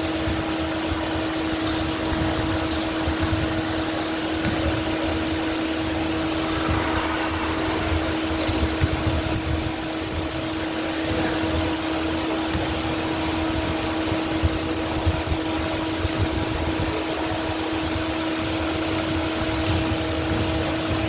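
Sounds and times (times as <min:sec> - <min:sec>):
large fan humming: 0:00.0 - 0:21.0
shoes squeaking on court: 0:01.6 - 0:04.7, 0:16.0 - 0:16.3.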